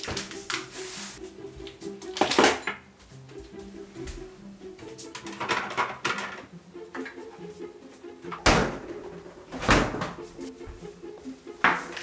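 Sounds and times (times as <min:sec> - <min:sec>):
soft background music: 0:00.0 - 0:12.0
refrigerator door thuds: 0:09.6 - 0:10.2.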